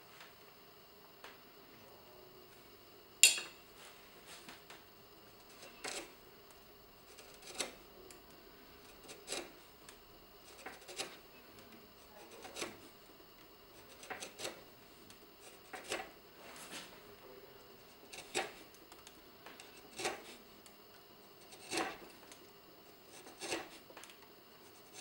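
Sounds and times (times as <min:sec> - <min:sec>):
gouge cutting wood: 0:05.5 - 0:06.1, 0:07.1 - 0:07.8, 0:09.0 - 0:09.6, 0:10.5 - 0:11.2, 0:12.2 - 0:12.9, 0:13.8 - 0:14.6, 0:18.0 - 0:18.7, 0:19.6 - 0:20.4, 0:21.4 - 0:22.1, 0:23.1 - 0:23.8.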